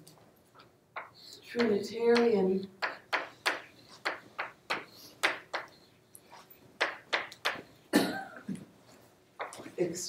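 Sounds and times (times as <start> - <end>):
chalk tapping on blackboard: 1.0 - 7.8.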